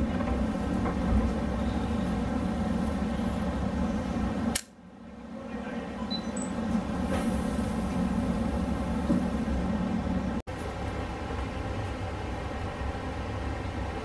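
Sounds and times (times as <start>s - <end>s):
electric locomotive humming: 0.0s - 14.0s
sharp click: 4.5s - 4.8s.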